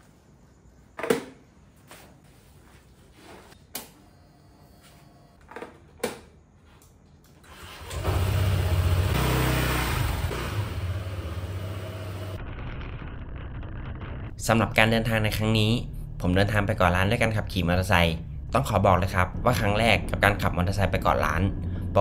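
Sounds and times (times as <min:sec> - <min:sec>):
motorcycle engine running: 0:08.0 - 0:13.2.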